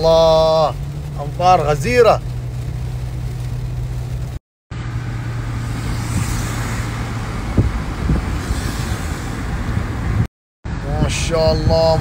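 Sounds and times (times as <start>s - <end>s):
car engine hum: 0.0s - 12.0s
wet tyres on road: 0.0s - 12.0s
heavy rain hiss: 5.8s - 10.2s.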